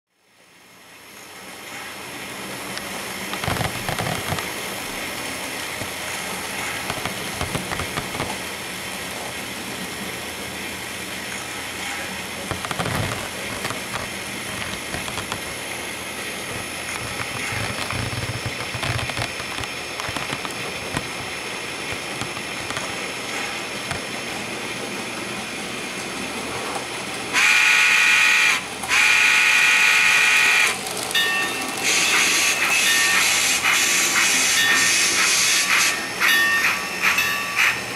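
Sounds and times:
train whistle blasts: 0:27.3 - 0:30.8, 0:31.8 - 0:37.9
model train steam hiss: 0:27.4 - 0:30.8, 0:31.8 - 0:37.8.

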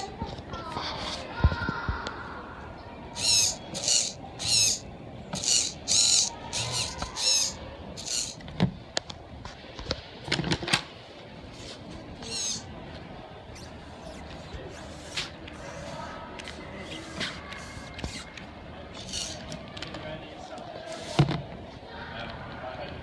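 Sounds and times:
servo motor whirring: 0:03.2 - 0:08.4, 0:12.2 - 0:12.7, 0:13.6 - 0:18.4, 0:19.0 - 0:19.5.

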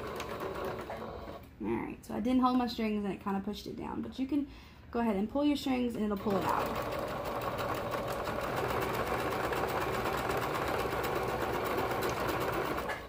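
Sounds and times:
sewing machine running: 0:00.0 - 0:01.4, 0:06.1 - 0:13.0.

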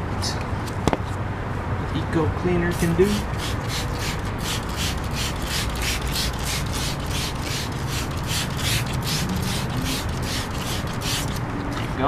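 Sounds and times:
spray bottle squirts: 0:03.4 - 0:11.4.

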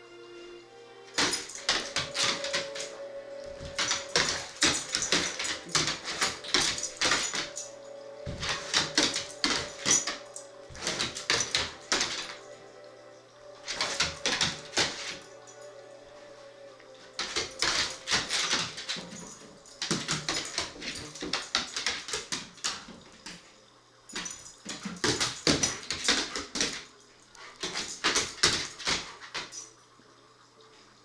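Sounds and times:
dog claws scrabbling on wood floor: 0:08.3 - 0:12.4.

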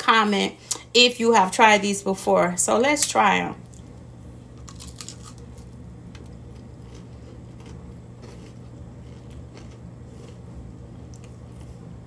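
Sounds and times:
steady low hum: 0:00.0 - 0:12.0
chip being bitten and chewed: 0:04.6 - 0:12.0.

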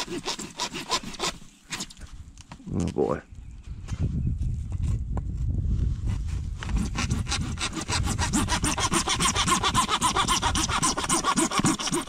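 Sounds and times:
hand saw cutting plastic pipe: 0:00.0 - 0:02.0, 0:06.6 - 0:12.0.

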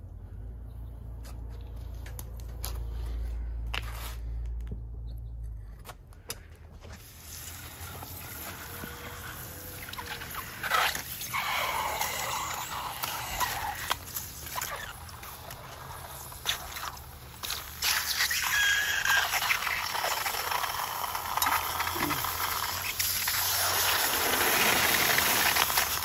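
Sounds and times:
hot metal sizzling on ice: 0:07.0 - 0:26.0.

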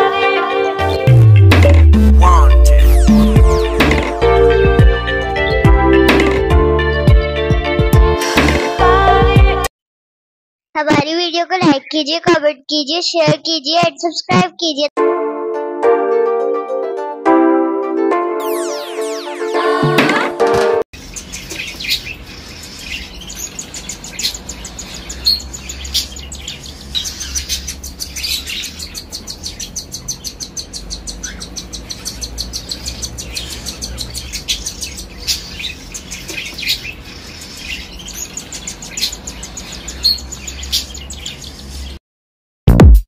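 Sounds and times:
parrot chicks peeping: 0:21.0 - 0:42.0.

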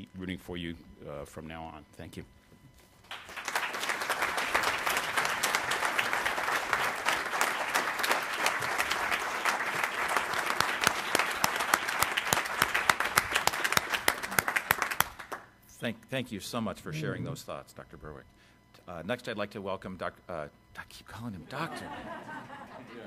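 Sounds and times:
audience applause: 0:03.0 - 0:15.4.

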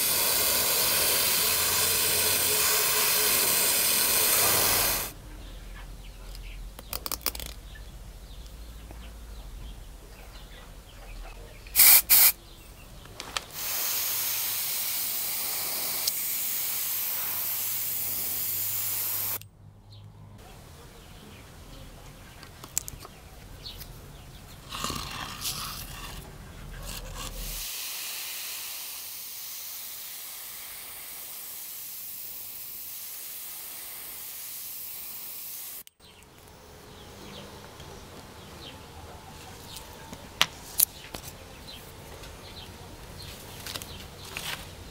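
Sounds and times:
airbrush spraying hiss: 0:00.0 - 0:05.2, 0:11.8 - 0:12.4, 0:13.5 - 0:19.4, 0:27.4 - 0:35.9.

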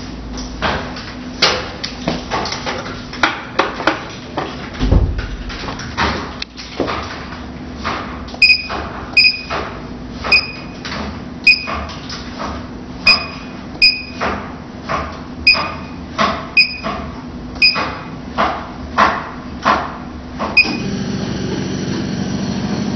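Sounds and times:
short electronic beeps: 0:08.4 - 0:09.5, 0:10.3 - 0:10.8, 0:11.5 - 0:11.7, 0:13.1 - 0:14.2, 0:15.5 - 0:16.0, 0:16.6 - 0:16.9, 0:17.6 - 0:17.8
machine hum: 0:19.5 - 0:22.9.

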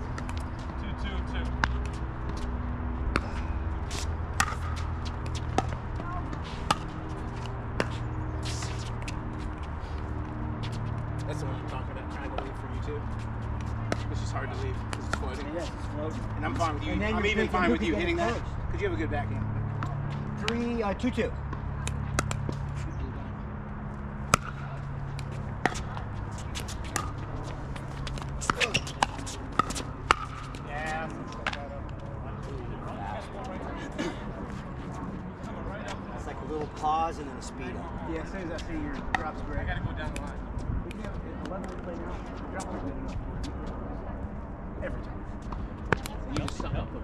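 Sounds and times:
steady low hum: 0:00.0 - 0:47.0.

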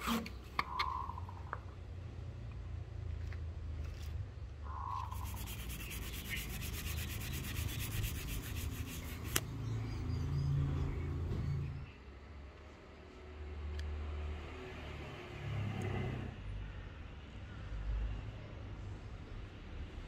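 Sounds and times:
sandpaper rubbing on metal: 0:05.0 - 0:09.4.

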